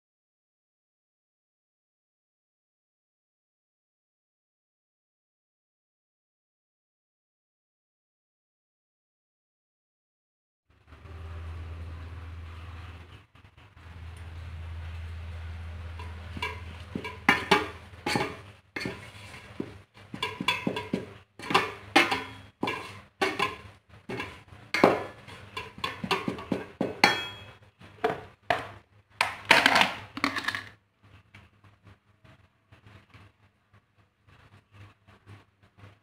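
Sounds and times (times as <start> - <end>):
utensil scraping metal pot: 15.8 - 27.6.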